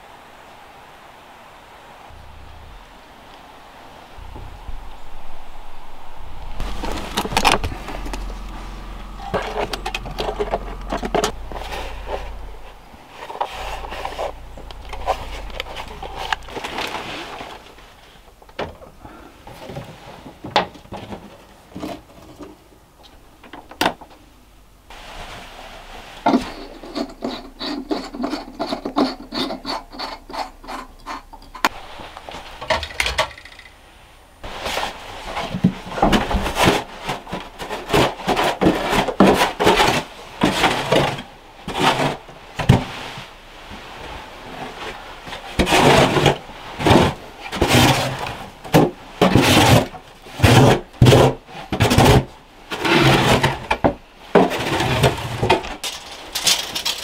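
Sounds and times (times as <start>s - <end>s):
shovel scraping sandy dirt: 6.6s - 18.1s.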